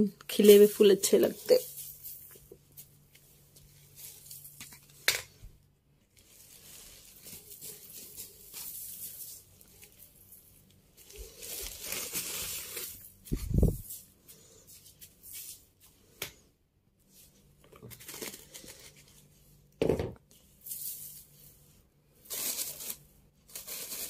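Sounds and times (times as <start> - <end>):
broom sweeping tiled floor: 0.3 - 17.5, 20.3 - 24.0.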